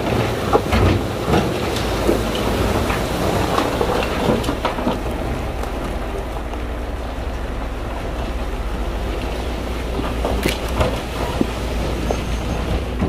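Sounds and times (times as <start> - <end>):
diesel machinery rumble: 0.0 - 13.0
stone and soil rattling: 0.1 - 13.0.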